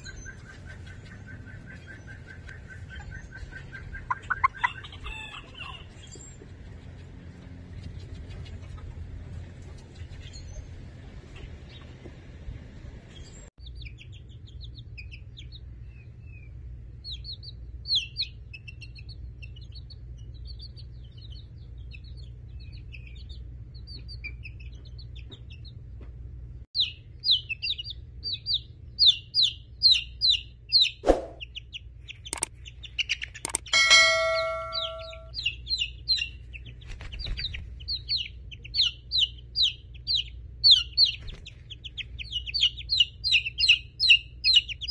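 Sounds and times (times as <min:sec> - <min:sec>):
chicks peeping: 0:00.0 - 0:26.2, 0:26.8 - 0:44.9
bell-like ding: 0:33.8 - 0:35.3.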